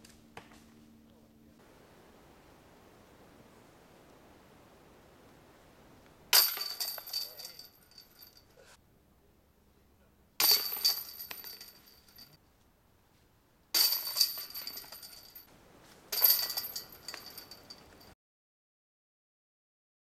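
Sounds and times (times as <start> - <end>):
disc striking metal chains: 6.4 - 8.5, 10.4 - 12.4, 13.8 - 15.5, 16.1 - 18.1.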